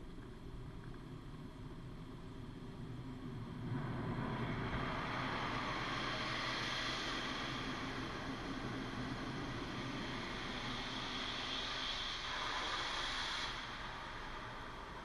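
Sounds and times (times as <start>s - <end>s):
rushing hiss of spray: 10.4s - 14.2s.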